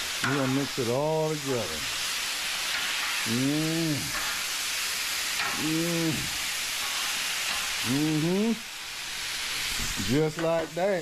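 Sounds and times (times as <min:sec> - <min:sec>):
chicken sizzling on a griddle: 0:00.0 - 0:11.0
man making wordless sounds: 0:03.2 - 0:04.2, 0:05.5 - 0:06.4, 0:07.8 - 0:08.6.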